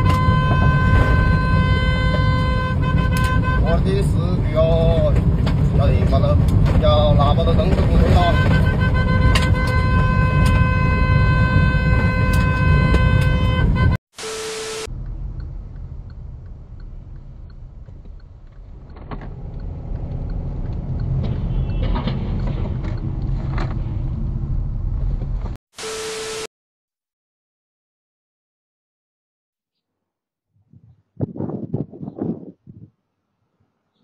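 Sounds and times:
car horn: 0:00.0 - 0:04.2, 0:08.0 - 0:14.9, 0:21.2 - 0:22.2
road noise inside car: 0:00.0 - 0:25.6
car engine: 0:11.9 - 0:26.4.

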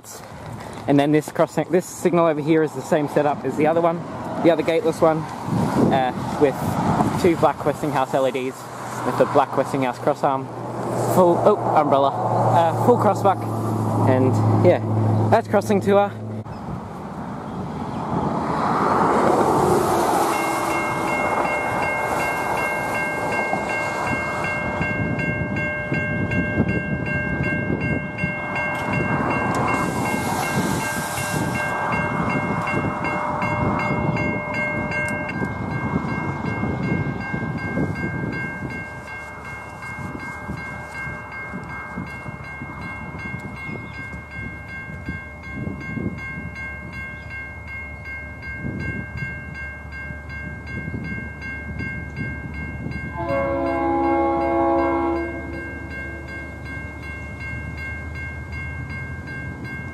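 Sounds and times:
level crossing bells ringing: 0:20.1 - 0:59.9.

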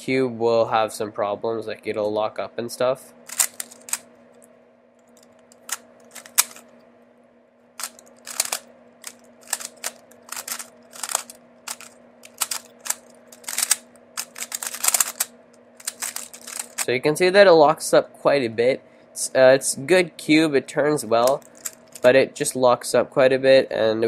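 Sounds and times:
plastic puzzle cube clicking: 0:07.8 - 0:08.6, 0:09.4 - 0:16.8.

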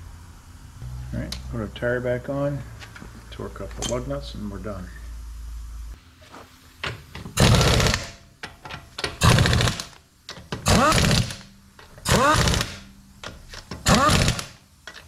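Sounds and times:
impact wrench whirring: 0:07.2 - 0:08.2, 0:09.1 - 0:12.9, 0:13.7 - 0:14.6.

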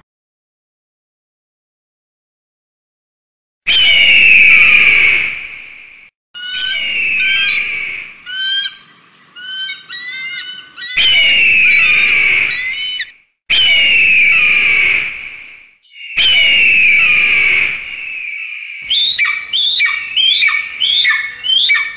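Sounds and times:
shrill chirping whistles: 0:03.7 - 0:05.0, 0:06.4 - 0:08.8, 0:09.4 - 0:14.9, 0:15.8 - 0:21.9
bird of prey screaming: 0:03.7 - 0:05.2, 0:06.4 - 0:15.1, 0:15.9 - 0:21.9.

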